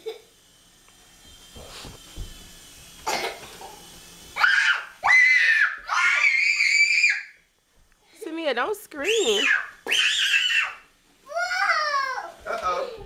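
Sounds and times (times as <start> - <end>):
child screaming: 4.4 - 7.4, 9.2 - 13.0.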